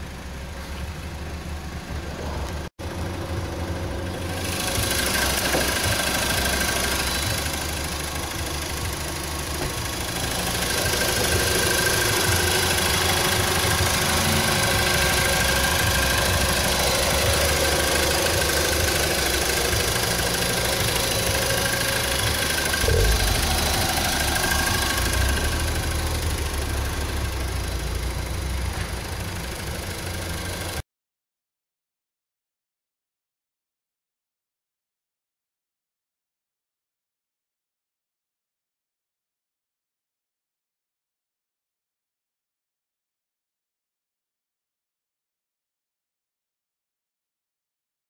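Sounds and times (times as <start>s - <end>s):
car engine idling: 0.0s - 30.8s.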